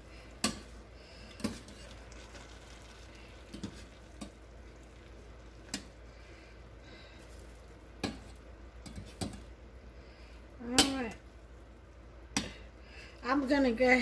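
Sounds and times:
food sizzling in a pan: 1.4 - 6.1.

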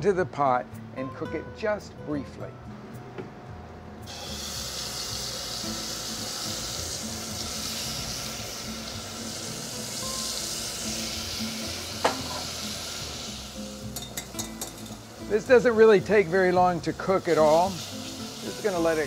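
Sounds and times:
sauce sizzling in hot oil: 4.0 - 19.0.

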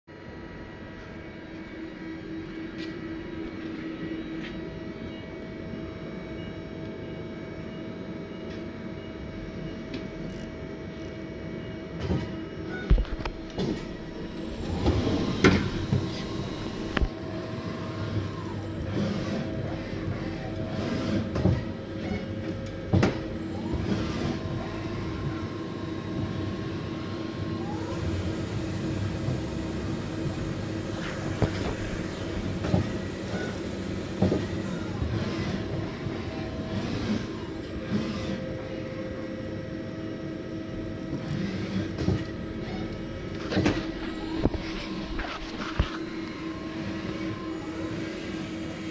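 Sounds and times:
high machine whines: 0.1 - 48.9
lathe humming: 13.2 - 22.4, 28.0 - 34.2.

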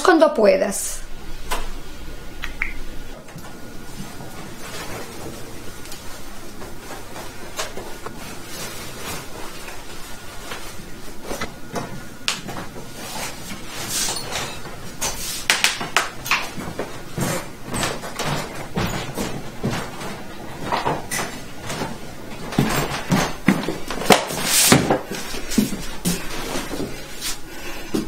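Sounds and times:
rustling and handling noises: 3.4 - 28.0.

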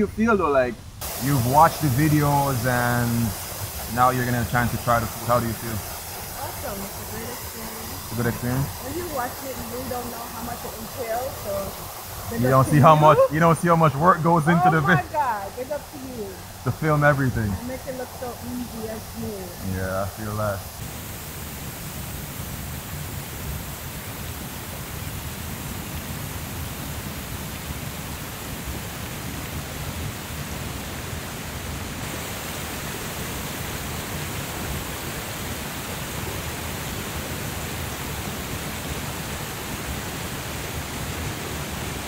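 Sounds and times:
water rushing in rocky stream: 1.0 - 19.6.

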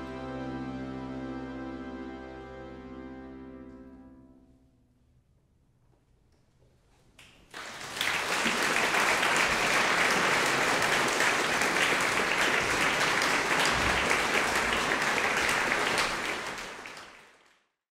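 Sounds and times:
audience applause: 7.5 - 17.7.

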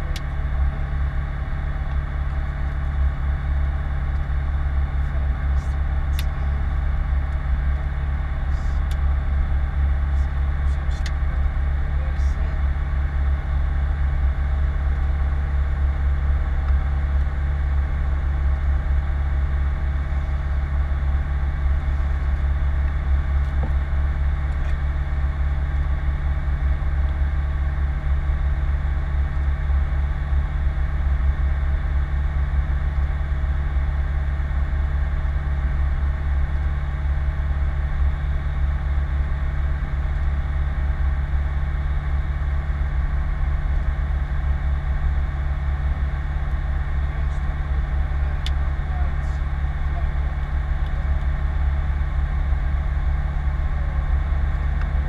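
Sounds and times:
light aircraft engine drone: 0.0 - 55.0.

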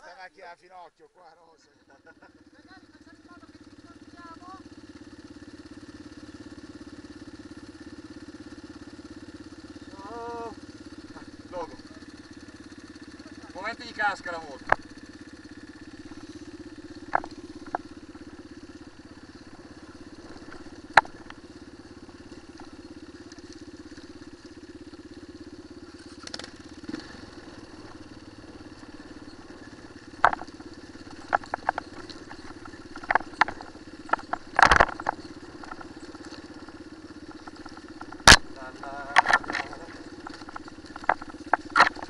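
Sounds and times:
motorcycle engine running: 1.6 - 42.0
knocks over stones: 30.2 - 36.6, 37.5 - 42.0.

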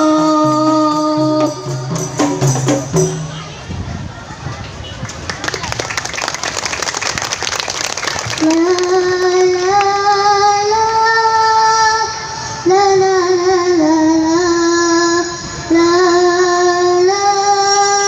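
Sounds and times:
rapid percussion hits: 0.0 - 3.7
child singing through loudspeaker: 0.0 - 5.0, 8.3 - 18.0.

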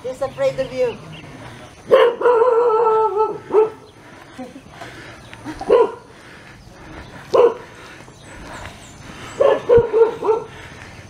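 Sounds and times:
dog barking: 1.9 - 3.9, 5.6 - 6.1, 7.3 - 7.7, 9.4 - 10.6.

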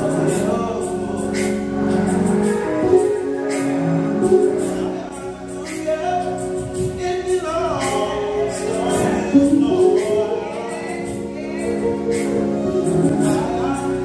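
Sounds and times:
electric bass: 0.0 - 14.0
group of people singing gospel: 0.0 - 14.0
organ and keyboard: 0.0 - 14.0.

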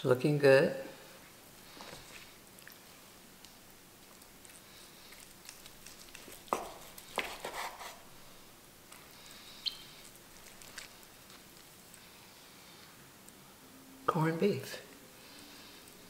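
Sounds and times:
knife slicing meat: 5.5 - 8.1.

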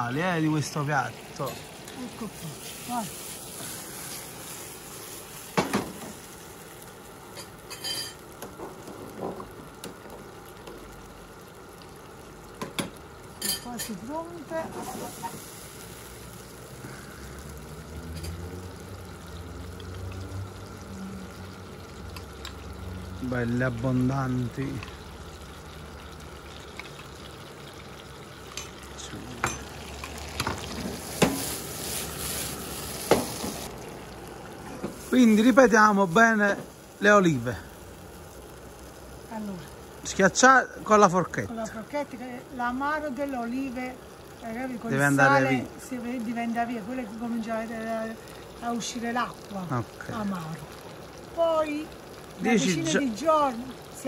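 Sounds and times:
tomatoes sizzling in frying pan: 0.0 - 54.0
pan clanking onto burner grate: 5.6 - 6.2, 7.3 - 9.5, 28.5 - 31.5
metal spoon clinking: 7.4 - 8.2.

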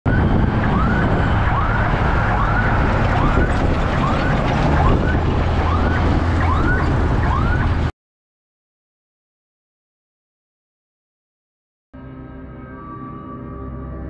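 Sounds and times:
road traffic rumble: 0.1 - 7.9
siren yelping: 0.1 - 7.9.

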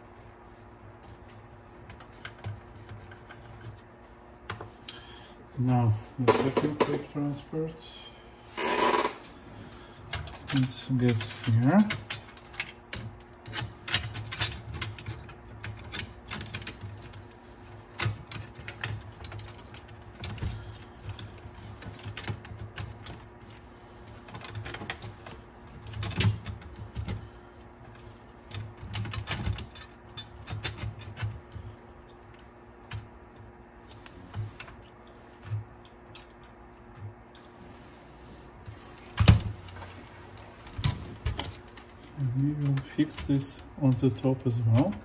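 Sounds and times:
tape deck mechanism clicks and thuds: 8.6 - 9.3.

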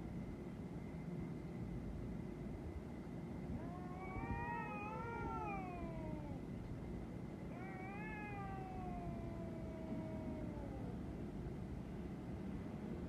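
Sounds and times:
cats yowling: 3.5 - 6.5, 7.4 - 11.2.

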